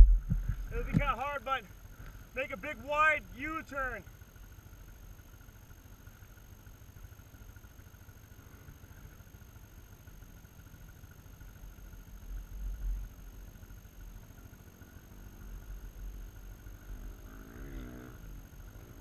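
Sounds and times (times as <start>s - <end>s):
louder low rumble: 0.0s - 0.9s
distant vehicle engine idling: 0.0s - 19.0s.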